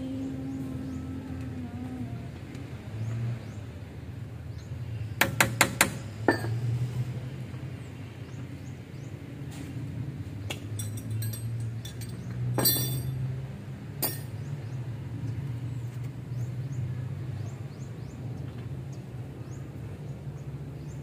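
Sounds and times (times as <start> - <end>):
metal clinks and knocks: 6.2 - 6.6, 10.5 - 13.3, 14.0 - 14.4.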